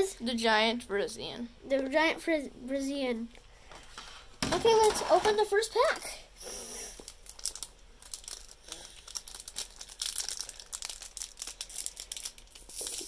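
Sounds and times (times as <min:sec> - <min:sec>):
plastic wrapper crinkling and tearing: 0:06.8 - 0:13.0.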